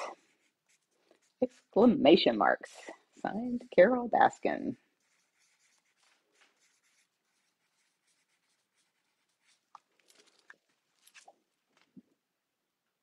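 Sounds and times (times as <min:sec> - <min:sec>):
pen scratching on paper: 0:00.0 - 0:02.2, 0:03.4 - 0:09.7.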